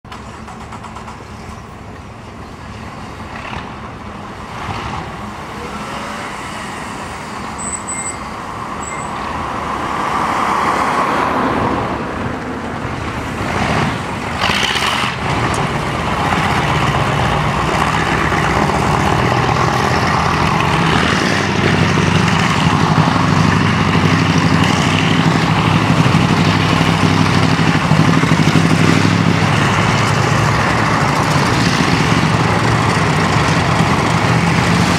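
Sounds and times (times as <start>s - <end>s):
military vehicles driving past: 0.1s - 34.9s
deep engine drone: 14.3s - 34.9s.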